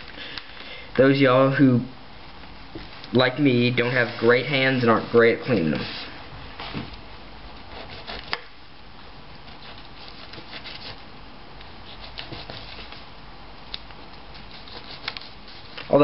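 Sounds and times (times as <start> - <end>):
knife scraping along fish: 7.7 - 8.4, 9.5 - 11.0, 11.9 - 13.0, 14.4 - 15.8.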